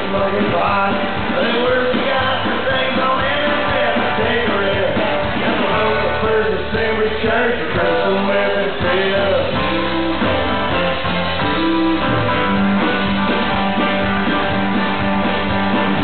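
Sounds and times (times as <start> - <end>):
man singing: 0.0 - 10.2
drum kit: 0.0 - 16.0.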